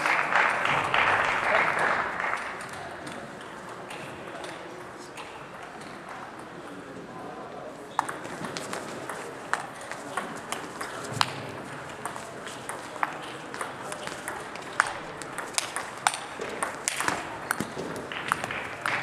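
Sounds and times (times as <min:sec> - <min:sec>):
ball bouncing on table: 0:08.0 - 0:11.4, 0:12.0 - 0:19.0
ball clicking off bats: 0:08.0 - 0:19.0.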